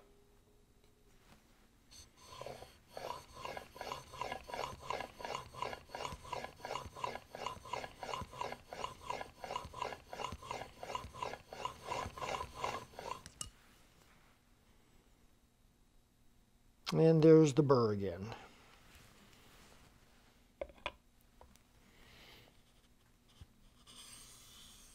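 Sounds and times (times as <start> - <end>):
plane blade rasping on water stone: 2.0 - 13.4.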